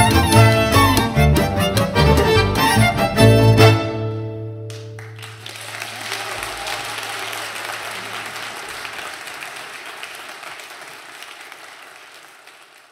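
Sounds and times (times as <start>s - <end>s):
audience applauding: 4.7s - 12.9s.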